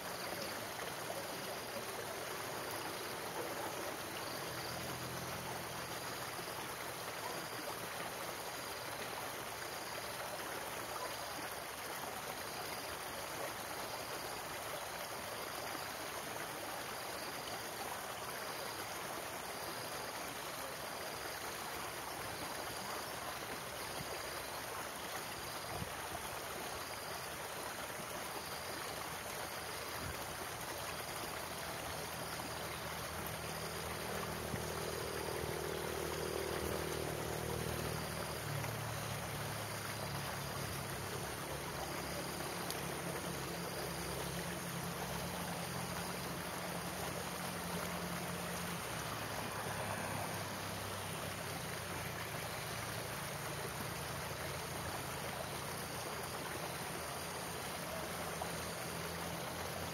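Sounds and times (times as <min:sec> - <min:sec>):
stream rushing over rocks: 0:00.0 - 0:59.9.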